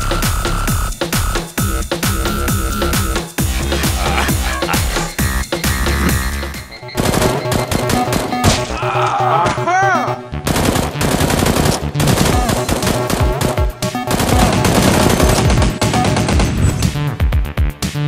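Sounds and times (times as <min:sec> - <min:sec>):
electronic background music: 0:00.0 - 0:18.0
automatic gunfire: 0:07.0 - 0:08.6, 0:10.4 - 0:16.6.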